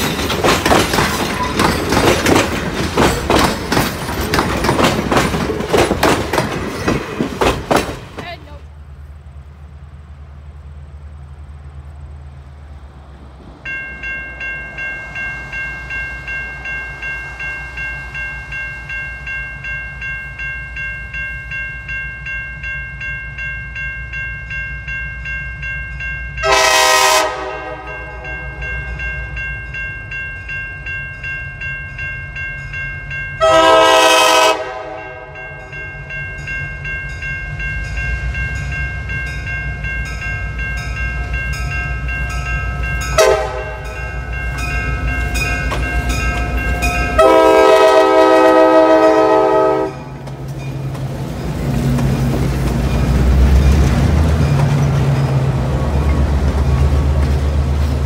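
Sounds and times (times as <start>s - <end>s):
train rumble: 0.0s - 58.0s
bell ringing steadily: 13.7s - 27.0s, 27.7s - 34.2s, 34.9s - 48.4s
locomotive horn blasts: 26.4s - 28.7s, 33.4s - 35.4s, 43.1s - 44.0s, 47.1s - 50.2s.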